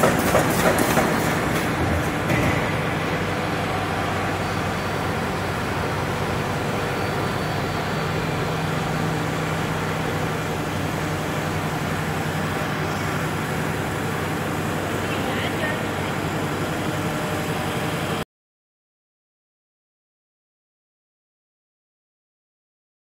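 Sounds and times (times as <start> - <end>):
machine humming: 0.0 - 18.2.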